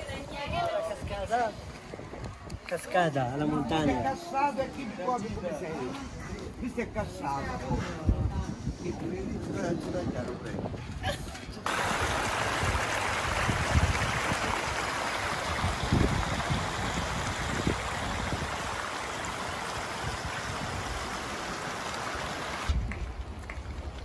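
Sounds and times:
wind rumbling on microphone: 0.0s - 2.7s, 5.4s - 24.0s
stream rushing over rocks: 11.7s - 22.8s.

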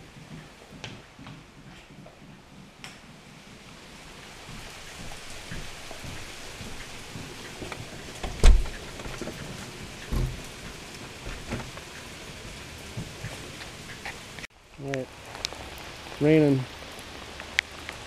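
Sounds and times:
rain falling: 0.0s - 18.0s.

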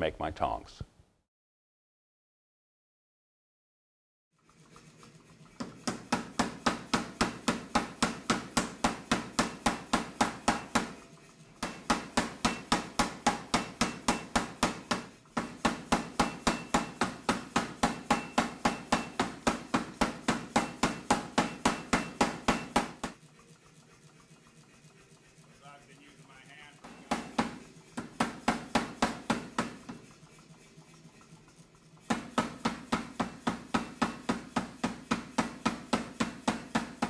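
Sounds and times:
power hammer striking hot steel: 5.6s - 11.0s, 11.6s - 23.2s, 26.8s - 30.0s, 32.1s - 37.0s.

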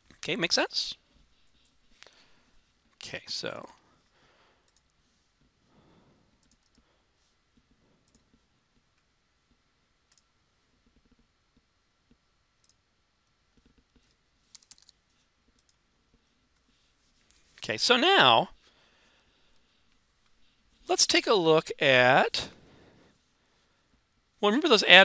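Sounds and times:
computer mouse clicks: 4.7s - 5.0s, 6.4s - 6.8s, 8.0s - 8.4s, 10.1s - 10.3s, 13.6s - 15.8s.

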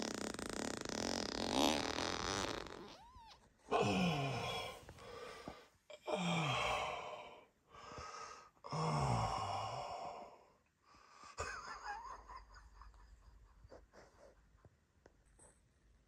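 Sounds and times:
person groaning sighs: 3.7s - 4.8s, 6.0s - 7.4s, 8.7s - 10.3s.

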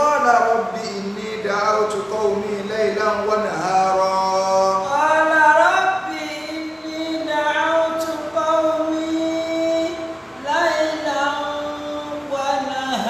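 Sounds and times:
man chanting recitation: 0.0s - 13.0s.

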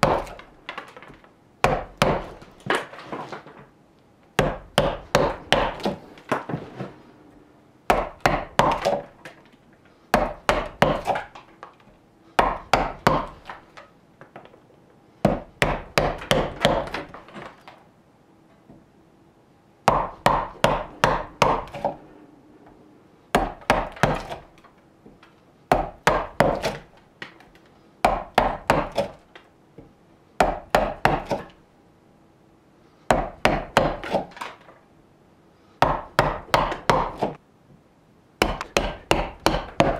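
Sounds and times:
mallet striking gouge into wood: 0.0s - 0.4s, 1.6s - 2.4s, 4.4s - 6.4s, 7.9s - 9.1s, 10.1s - 11.3s, 12.4s - 13.6s, 15.2s - 17.2s, 19.9s - 22.0s, 23.4s - 24.5s, 25.7s - 26.9s, 28.0s - 29.2s, 30.4s - 31.5s, 33.1s - 34.4s, 35.8s - 37.4s, 38.4s - 39.9s.

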